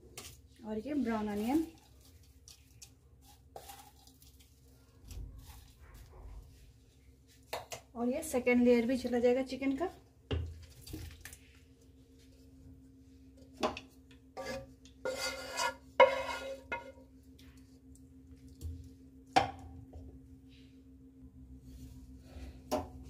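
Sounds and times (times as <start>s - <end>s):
faint steady hum: 0.0s - 23.0s
metal spoon scraping pots: 14.4s - 17.0s.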